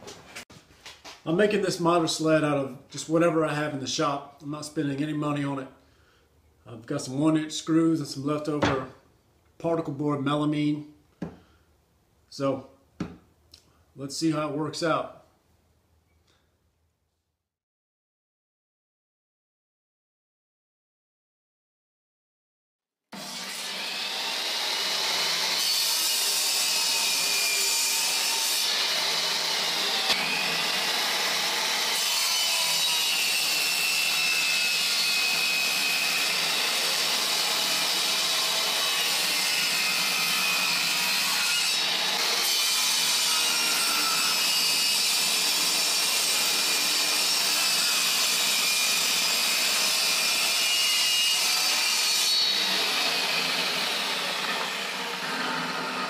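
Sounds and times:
table saw cutting wood: 0:23.2 - 0:56.0.

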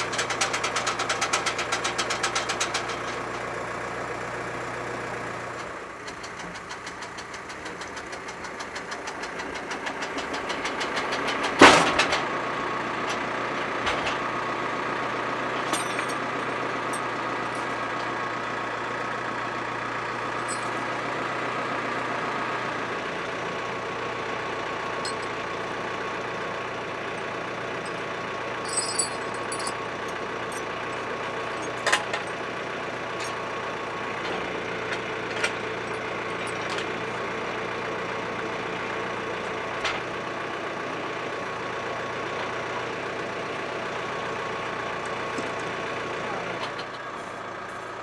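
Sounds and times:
tractor engine idling: 0:00.0 - 0:48.0
metal chain clinks: 0:15.7 - 0:17.8, 0:20.4 - 0:20.8, 0:25.0 - 0:25.4, 0:28.6 - 0:29.8.

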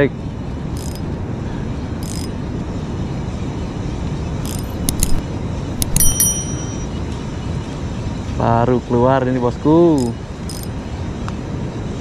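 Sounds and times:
sharp clicks: 0:00.8 - 0:01.0, 0:02.0 - 0:02.3, 0:04.4 - 0:05.2, 0:05.8 - 0:06.5, 0:10.0 - 0:10.7
bright bell-like chime: 0:05.8 - 0:07.0.

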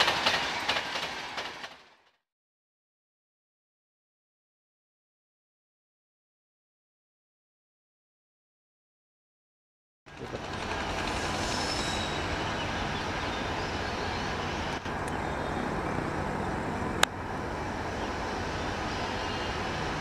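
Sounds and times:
train rumbling: 0:00.0 - 0:02.2, 0:10.1 - 0:20.0.

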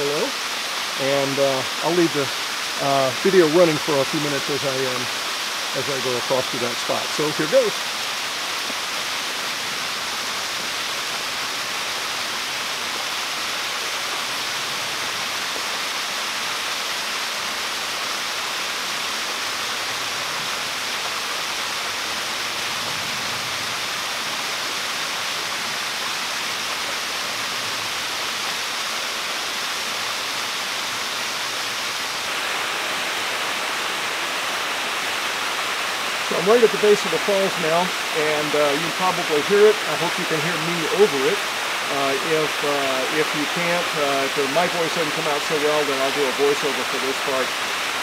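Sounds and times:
waterfall and stream rushing: 0:00.0 - 0:48.0.

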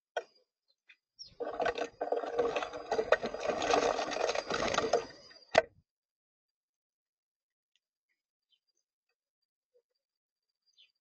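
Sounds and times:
clattering and scratching at bird feeder: 0:01.3 - 0:05.3.

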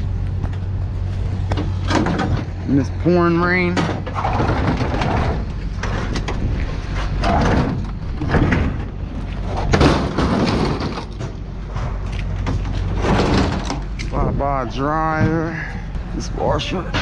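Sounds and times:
steady low hum: 0:00.0 - 0:17.0
metal scraping and banging: 0:01.4 - 0:14.4.

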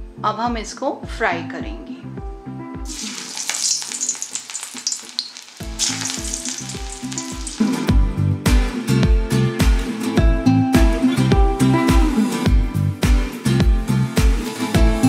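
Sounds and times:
background music with steady beat: 0:00.0 - 0:02.9, 0:05.7 - 0:15.0
food deep-frying in hot oil: 0:02.9 - 0:07.9.

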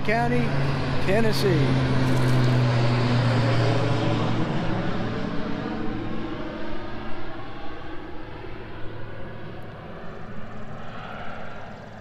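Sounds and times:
plane engine and propeller drone: 0:00.0 - 0:12.0.

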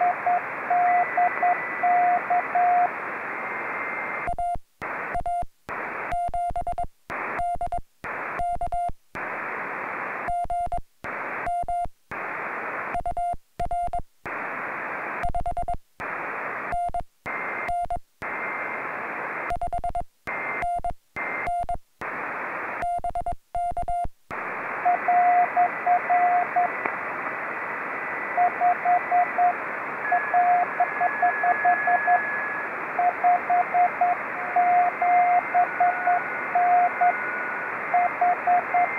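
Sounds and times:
morse code tone: 0:00.0 - 0:02.9, 0:28.4 - 0:32.4, 0:33.0 - 0:38.9
faint radio signal whistles: 0:00.0 - 0:06.3, 0:16.0 - 0:19.6, 0:20.3 - 0:23.0, 0:24.3 - 0:38.9
radio receiver hiss: 0:00.0 - 0:13.2, 0:13.9 - 0:23.4, 0:24.3 - 0:38.9.

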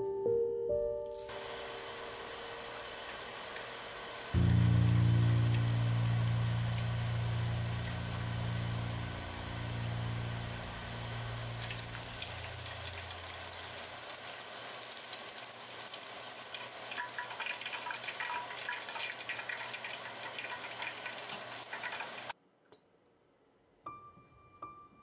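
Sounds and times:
soft background music: 0:00.0 - 0:02.8, 0:04.4 - 0:13.1, 0:23.8 - 0:25.0
cutlet deep-frying in oil: 0:01.2 - 0:22.3.

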